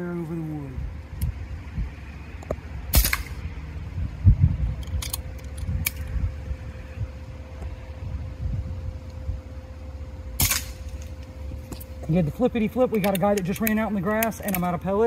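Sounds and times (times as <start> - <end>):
steady low rumble: 0.0 - 15.0
air rifle crack: 2.9 - 3.5, 10.4 - 11.3.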